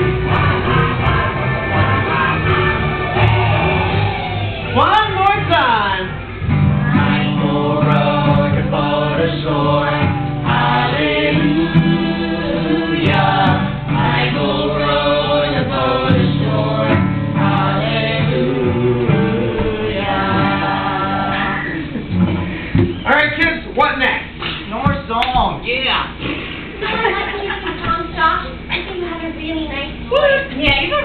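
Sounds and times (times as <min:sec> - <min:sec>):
group of voices singing: 0:00.0 - 0:04.7, 0:06.7 - 0:22.6
strummed acoustic guitar: 0:00.0 - 0:23.0.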